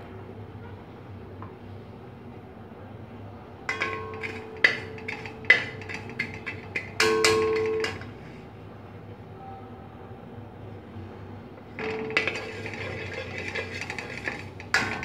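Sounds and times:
low steady hum: 0.0 - 15.0
metal spoon knocking on pot: 3.7 - 8.2, 11.8 - 15.0.

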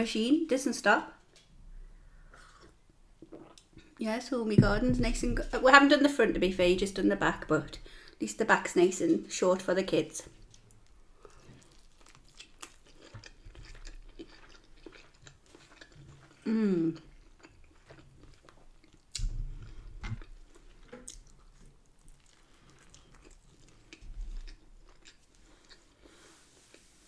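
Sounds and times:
person chewing food: 1.9 - 4.0, 10.3 - 27.0
low thuds: 4.5 - 7.8.

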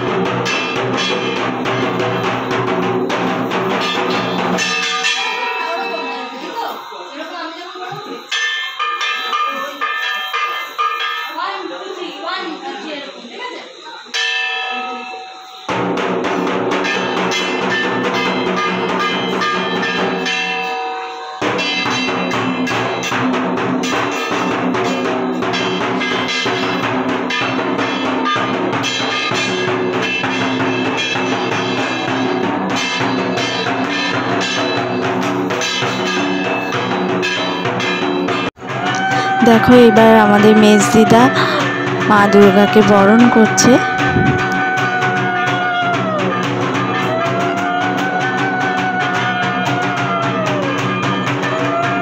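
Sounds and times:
drum beaten fast with sticks: 0.0 - 6.5, 15.7 - 20.7, 21.3 - 52.0
small metal gong struck: 3.8 - 7.4.

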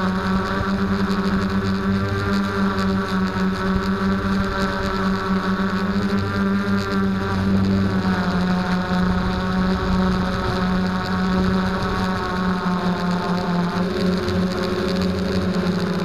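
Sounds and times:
drone motors buzzing whine: 0.0 - 16.0
wind noise: 5.9 - 12.7.

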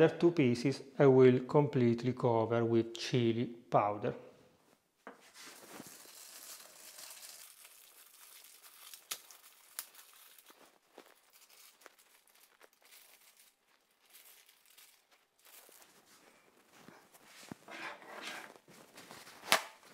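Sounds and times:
plastic wrap crinkling: 5.2 - 17.7, 18.4 - 19.9.

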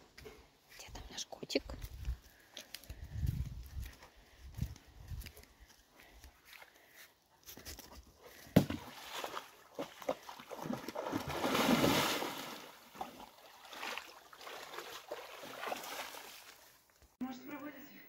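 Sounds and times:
dog splashing through water: 8.5 - 16.8.

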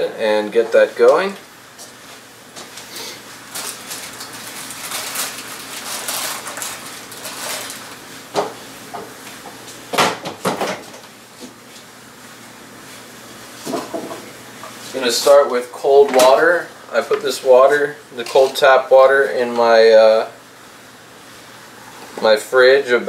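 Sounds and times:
rustling movement: 1.9 - 8.3.

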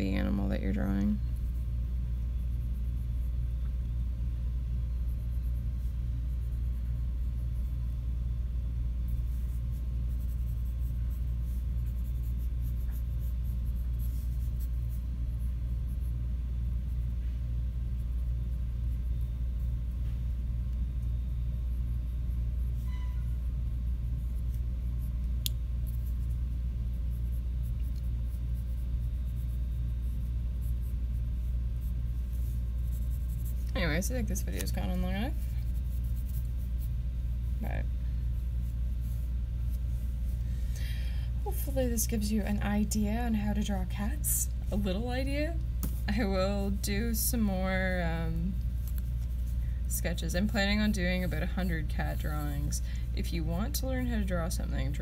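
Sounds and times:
steady low rumble: 0.0 - 55.0
pencil scratching on paper: 4.9 - 8.0, 9.0 - 19.9, 25.8 - 36.9, 50.1 - 52.7.

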